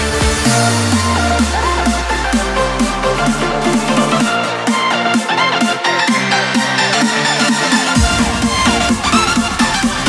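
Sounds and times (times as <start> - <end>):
deep bass: 0.0 - 5.0, 7.8 - 10.0.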